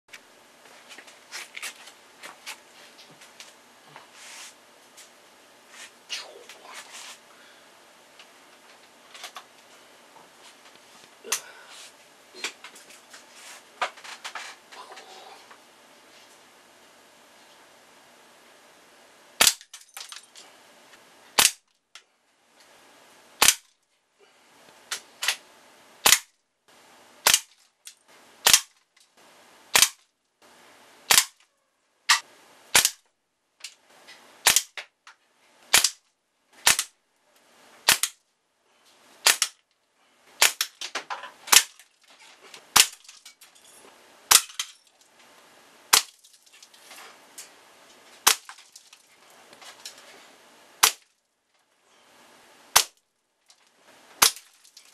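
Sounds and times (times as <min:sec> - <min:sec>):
air gun shots: 0:19.4 - 0:19.6, 0:21.4 - 0:21.6, 0:23.4 - 0:23.7, 0:26.0 - 0:26.3, 0:27.2 - 0:27.5, 0:28.4 - 0:28.7, 0:29.7 - 0:30.0, 0:31.1 - 0:31.4, 0:32.1 - 0:33.0, 0:34.4 - 0:34.8, 0:35.7 - 0:36.0, 0:36.6 - 0:36.9, 0:37.9 - 0:38.2, 0:39.2 - 0:39.6, 0:40.4 - 0:40.8, 0:41.5 - 0:41.7, 0:42.8 - 0:43.0, 0:45.9 - 0:46.1, 0:48.2 - 0:48.5, 0:50.8 - 0:51.0, 0:52.7 - 0:53.0
pellets knocking plastic toys: 0:54.2 - 0:54.9.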